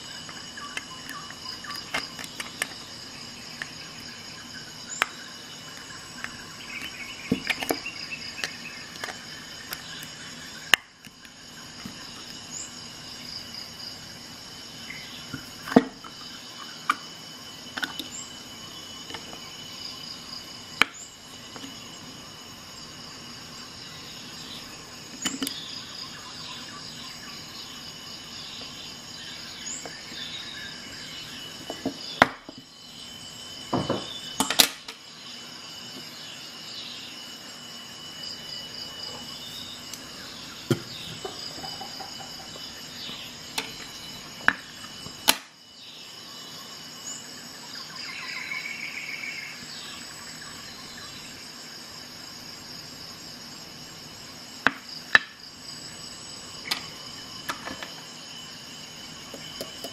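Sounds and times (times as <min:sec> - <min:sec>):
faint chirps: 0:00.0 - 0:51.8
steady high hiss: 0:00.0 - 0:59.9.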